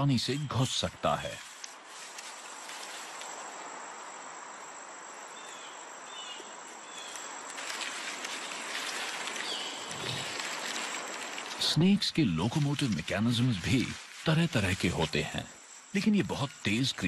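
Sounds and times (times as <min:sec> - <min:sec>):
insect chirring: 0:00.0 - 0:17.0
rustling: 0:01.2 - 0:04.2, 0:06.4 - 0:17.0.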